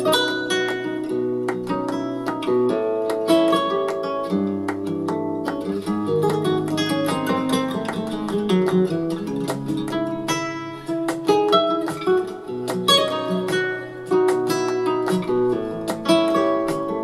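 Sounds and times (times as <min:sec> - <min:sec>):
guitar music: 0:00.0 - 0:17.0.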